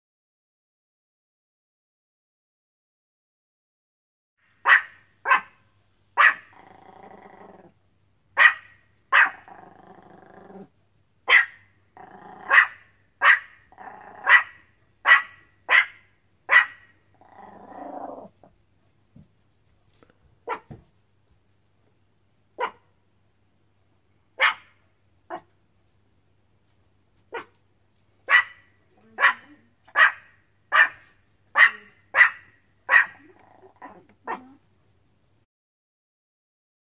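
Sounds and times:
small dog barking: 0:04.6 - 0:06.8, 0:08.4 - 0:09.5, 0:11.2 - 0:11.7, 0:12.3 - 0:17.0, 0:20.4 - 0:20.8, 0:22.6 - 0:23.0, 0:24.4 - 0:25.5, 0:27.3 - 0:27.6, 0:28.3 - 0:34.6
dog growling: 0:06.4 - 0:07.8, 0:09.3 - 0:10.7, 0:12.0 - 0:12.7, 0:13.7 - 0:14.4, 0:17.1 - 0:18.5, 0:33.0 - 0:34.6.

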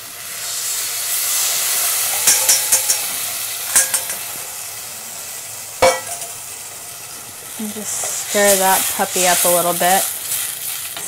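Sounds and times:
puree sizzling in hot pan: 0:00.0 - 0:11.0.

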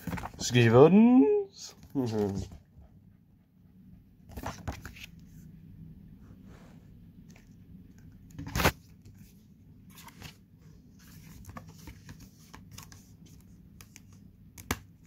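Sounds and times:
cardboard rustling: 0:00.0 - 0:00.8
faint low hum: 0:00.0 - 0:14.6.

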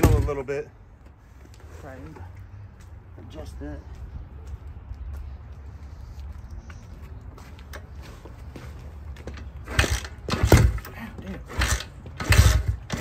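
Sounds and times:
dirt bike kick-start attempts: 0:09.3 - 0:13.0.

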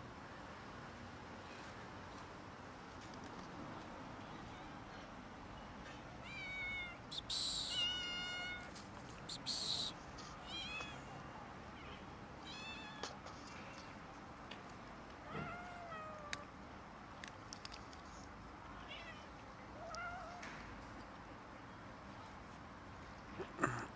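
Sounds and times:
cats meowing: 0:06.2 - 0:08.7, 0:09.3 - 0:11.0
cat hissing: 0:07.1 - 0:08.6, 0:09.3 - 0:09.9.

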